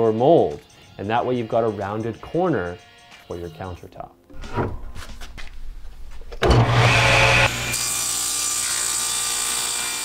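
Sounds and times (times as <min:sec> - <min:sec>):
power saw cutting board: 0:06.3 - 0:10.0.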